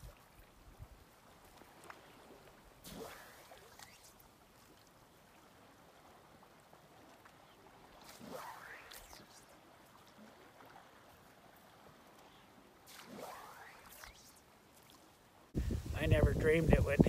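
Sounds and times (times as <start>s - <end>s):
faint river water flowing: 0.0s - 17.0s
brief swish: 2.8s - 4.2s, 8.0s - 9.5s, 12.9s - 14.4s.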